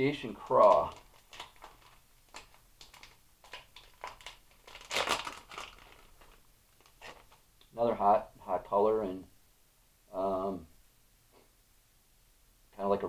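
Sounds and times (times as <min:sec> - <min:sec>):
plastic packaging crinkling: 0:00.2 - 0:07.5.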